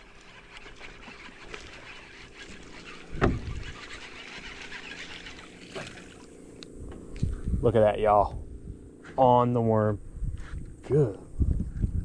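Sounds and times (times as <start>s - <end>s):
fishing reel whirring: 0.0s - 6.8s.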